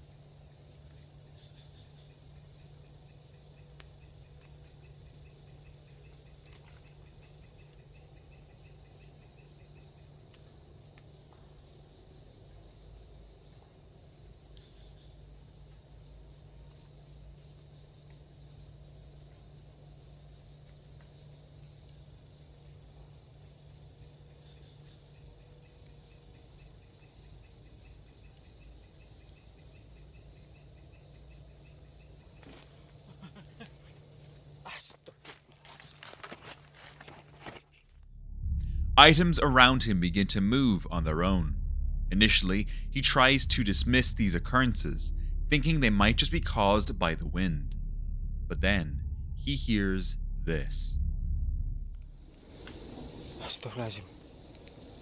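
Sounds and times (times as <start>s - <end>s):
night insects chirring: 0.0s - 45.4s, 50.1s - 55.0s
low steady hum: 38.0s - 52.4s.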